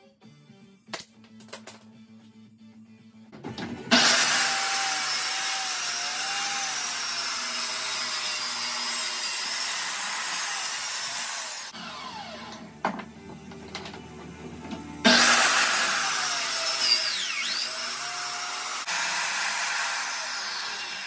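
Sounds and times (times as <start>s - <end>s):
circular saw cutting plywood: 3.9s - 12.6s, 15.0s - 21.0s.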